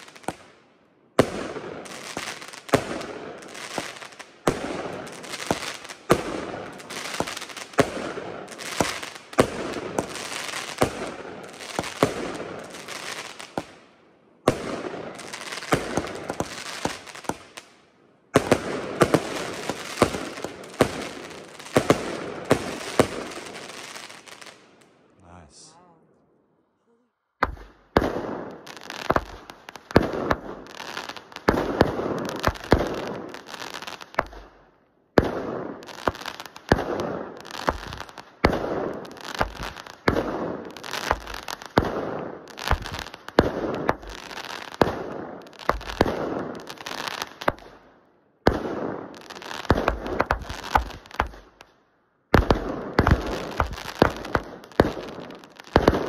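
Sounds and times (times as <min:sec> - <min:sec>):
firework bangs: 0:18.3 - 0:24.6, 0:27.4 - 0:34.5, 0:35.2 - 0:47.7, 0:48.4 - 0:51.5, 0:52.3 - 0:56.0
firework crackling: 0:18.4 - 0:25.7, 0:27.4 - 0:34.5, 0:35.2 - 0:47.8, 0:48.5 - 0:51.6, 0:52.4 - 0:56.0.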